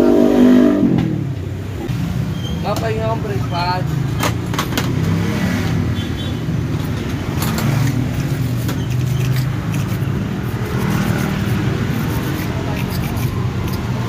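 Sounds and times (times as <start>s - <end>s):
hand tool clicking and scraping: 6.8s - 14.0s.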